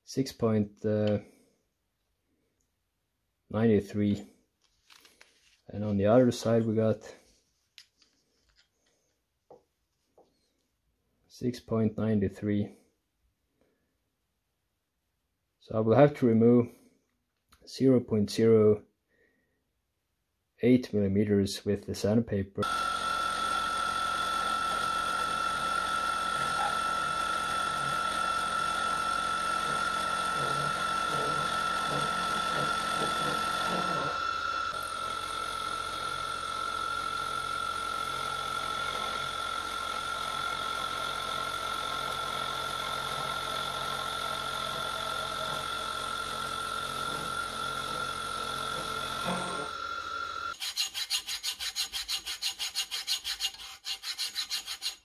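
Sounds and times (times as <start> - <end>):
milling machine cutting metal: 22.6 - 55.0
rubbing strokes: 50.6 - 55.0.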